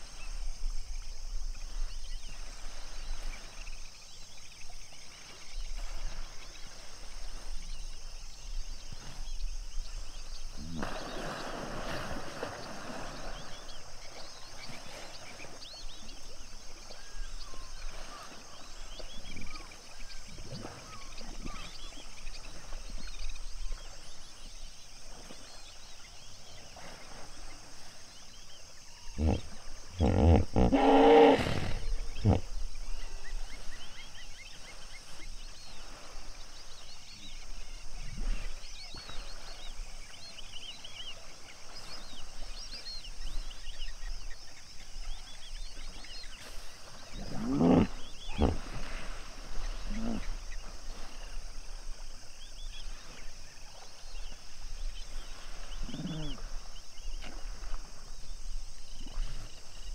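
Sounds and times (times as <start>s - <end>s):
hippopotamus grunting: 29.1s - 32.8s, 47.0s - 50.8s, 55.7s - 56.7s.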